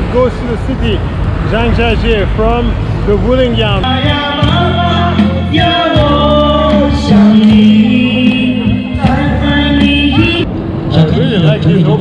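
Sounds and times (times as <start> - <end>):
backing track from loudspeaker: 3.6 - 12.0
person singing karaoke: 3.8 - 10.5.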